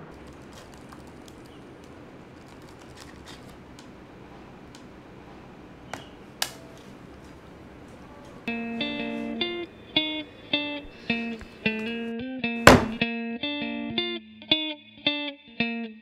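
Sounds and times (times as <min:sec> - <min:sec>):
laptop keyboard and trackpad clicks: 0:00.2 - 0:03.9
electric guitar music: 0:08.2 - 0:16.0.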